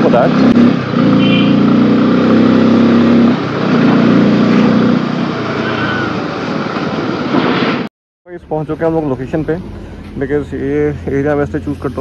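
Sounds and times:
motorcycle engine running: 0.0 - 3.2
wind and road noise: 0.0 - 12.0.

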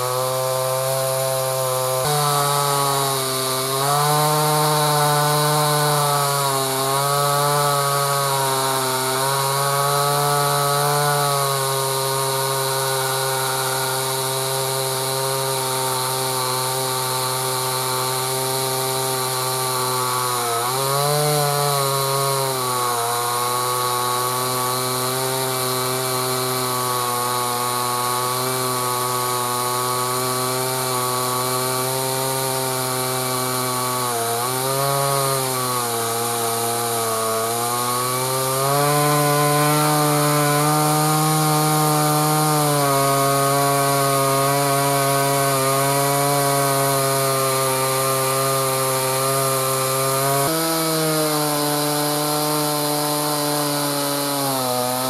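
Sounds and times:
chainsaw cutting through log: 0.0 - 55.0.

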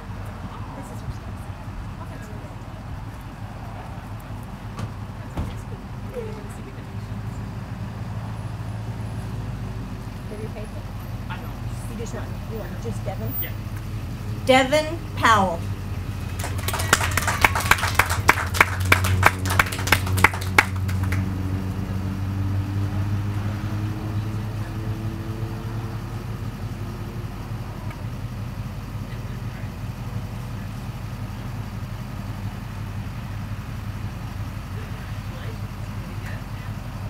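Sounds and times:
low engine hum: 0.0 - 37.0
people clapping: 16.1 - 21.7.

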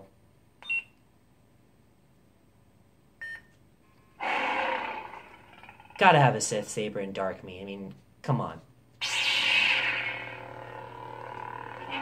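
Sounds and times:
lightsaber hum: 4.2 - 6.3, 9.0 - 12.0.

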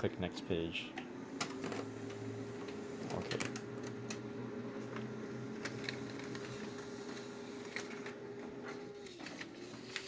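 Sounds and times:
printer humming: 0.0 - 10.0
printer clicks: 0.9 - 6.8.

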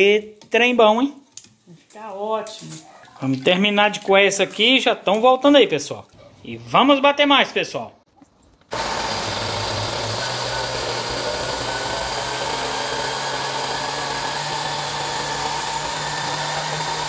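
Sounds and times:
electric blender running: 8.7 - 17.0.

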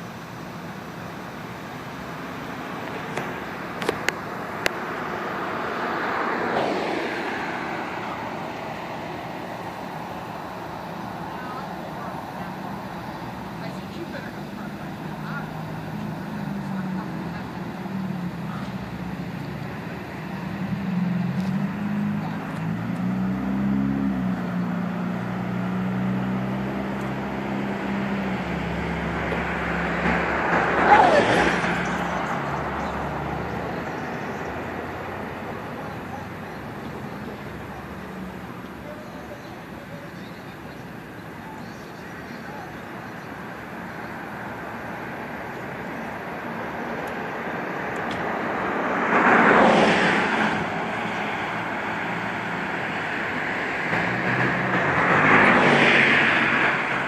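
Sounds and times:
constant hiss: 0.0 - 6.8
road traffic: 0.0 - 57.0
vehicle passing: 0.0 - 57.0.

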